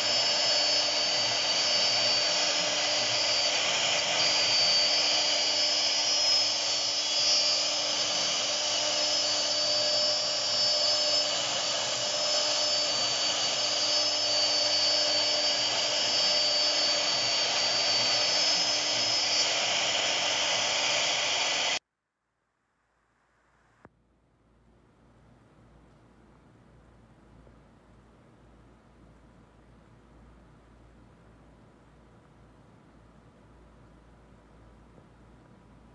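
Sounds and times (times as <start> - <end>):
router bit cutting board: 0.0 - 21.8
router spindle high-pitched whine: 0.0 - 21.8.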